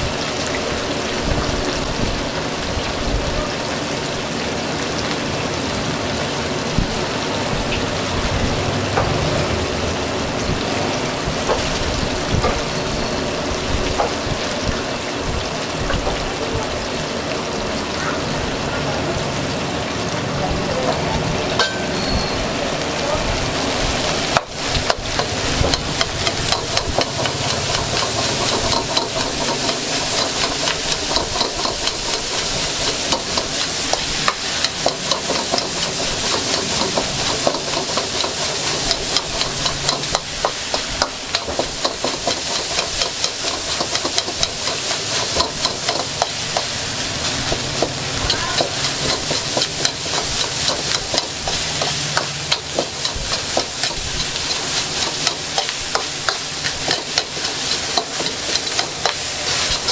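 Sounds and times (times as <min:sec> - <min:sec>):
rice sizzling in a wok: 0:00.0 - 0:18.7, 0:23.5 - 0:59.9
utensil scraping and knocking wok: 0:11.3 - 0:11.8, 0:20.9 - 0:22.1, 0:24.3 - 0:59.9.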